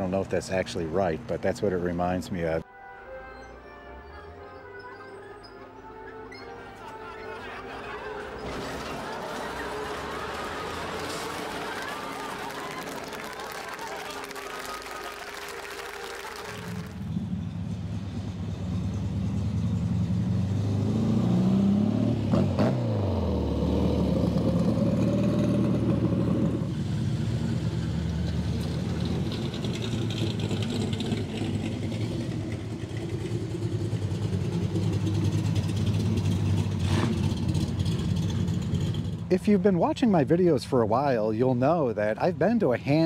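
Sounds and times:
car engines running: 0:07.4 - 0:43.0
car driving past: 0:08.0 - 0:14.7.

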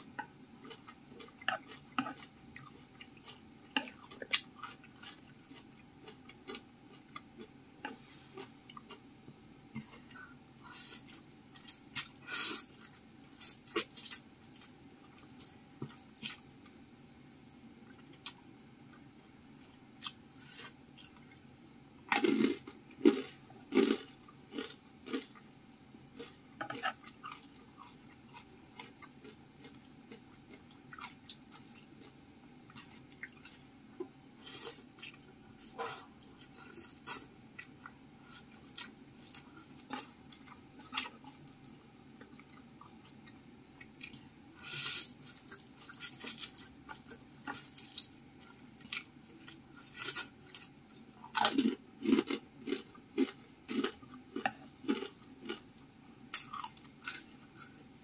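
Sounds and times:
close-miked chewing noodles: 0:00.0 - 0:09.0, 0:19.7 - 0:25.6, 0:26.2 - 0:33.8, 0:34.4 - 0:55.7.

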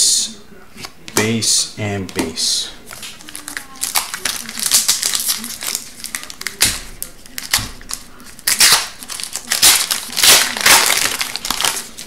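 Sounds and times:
wrapper tearing and crinkling: 0:02.9 - 0:12.0.

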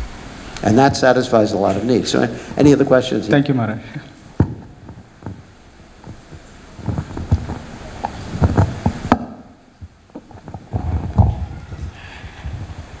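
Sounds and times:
headset microphone clicks: 0:04.1 - 0:11.5
microphone handling thumps and rustles: 0:04.2 - 0:13.0.

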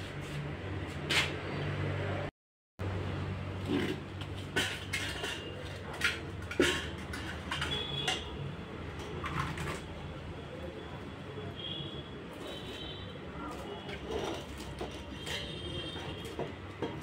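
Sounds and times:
metal ladle scraping a pot: 0:03.6 - 0:09.9, 0:13.8 - 0:17.0.

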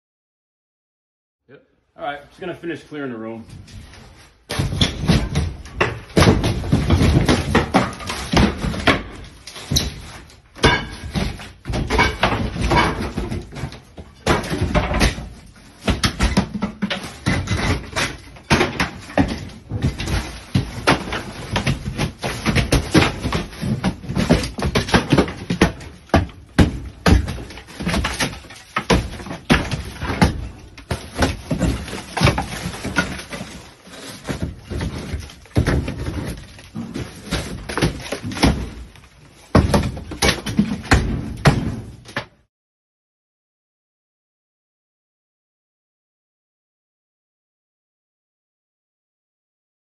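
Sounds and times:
drywall ceiling cracking and crashing: 0:03.5 - 0:42.5.

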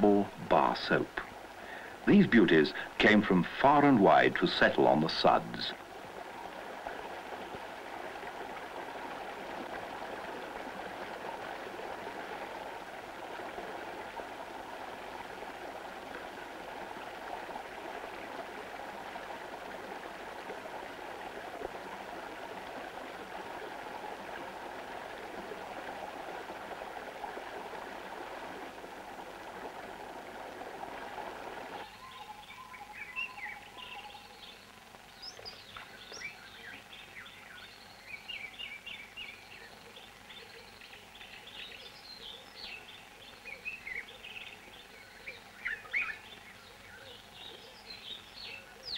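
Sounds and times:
mountain stream rushing: 0:00.0 - 0:31.9
birds chirping: 0:31.7 - 0:48.9.

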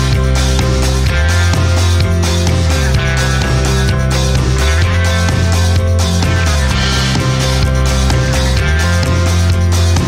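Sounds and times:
background music with bass notes: 0:00.0 - 0:10.0.

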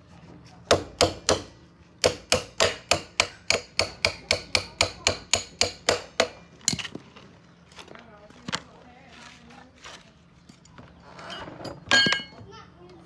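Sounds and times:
hammer strikes on workpiece: 0:00.7 - 0:06.8.

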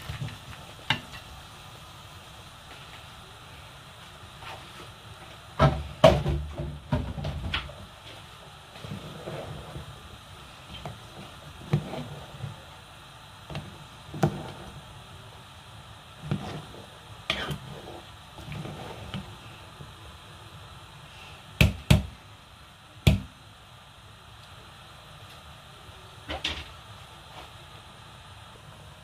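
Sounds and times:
thick soup bubbling: 0:07.7 - 0:21.2.

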